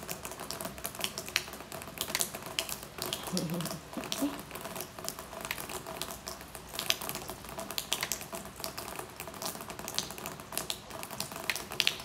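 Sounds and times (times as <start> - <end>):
rain drops on hard surfaces: 0.0 - 12.0.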